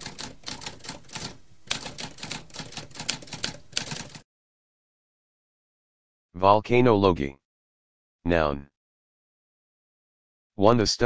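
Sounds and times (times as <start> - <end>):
typewriter keys clacking: 0.0 - 4.2.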